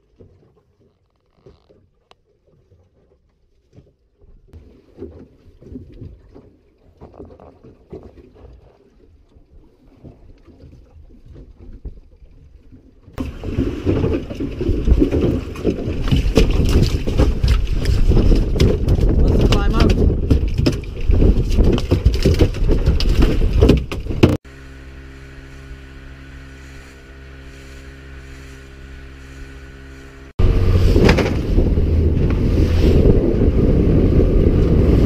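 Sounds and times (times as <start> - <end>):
wind buffeting microphone: 13.2 - 24.4, 30.4 - 35.0.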